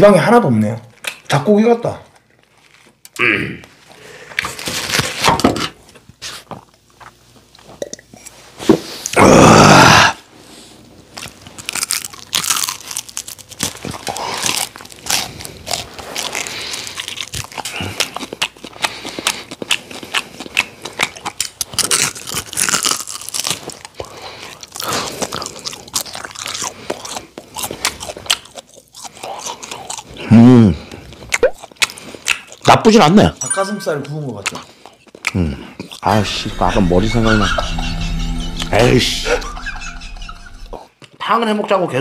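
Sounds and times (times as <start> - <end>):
man chewing and crunching: 11.1 - 32.8, 34.4 - 38.4.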